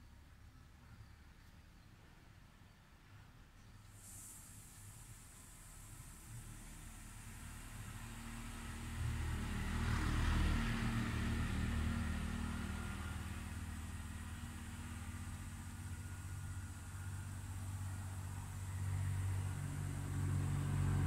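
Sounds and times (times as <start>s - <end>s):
vehicle passing: 6.3s - 21.0s.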